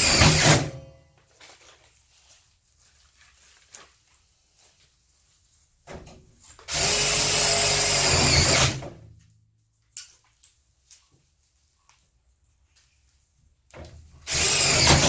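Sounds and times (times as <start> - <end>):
cordless drill running: 0.0 - 0.6, 6.7 - 8.8, 14.3 - 15.0
faint handling sounds: 1.0 - 6.6, 9.1 - 13.7.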